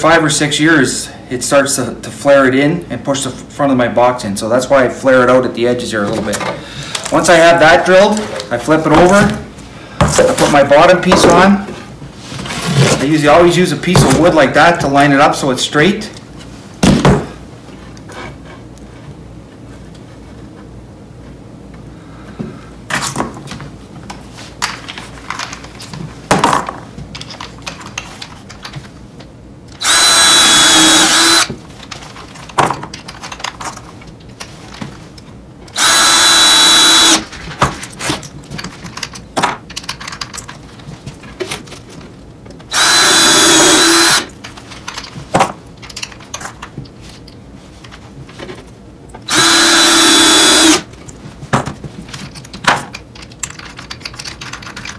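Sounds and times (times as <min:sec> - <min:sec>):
cordless drill boring into wood: 0:29.8 - 0:31.5, 0:35.7 - 0:37.3, 0:42.7 - 0:44.3, 0:49.3 - 0:50.8.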